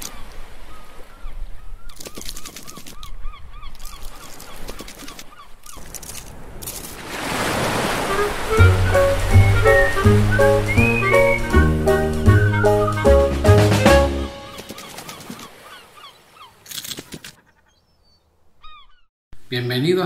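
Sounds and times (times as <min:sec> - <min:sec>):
surf-like rush: 0:06.2 - 0:14.7
cheerful music: 0:08.0 - 0:14.6.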